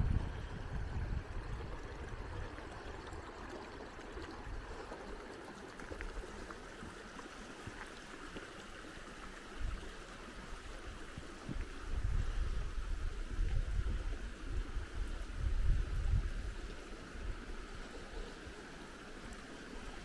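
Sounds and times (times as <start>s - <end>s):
wind rumble on microphone: 0.0s - 3.4s, 10.9s - 17.6s
creek water running: 0.0s - 20.0s.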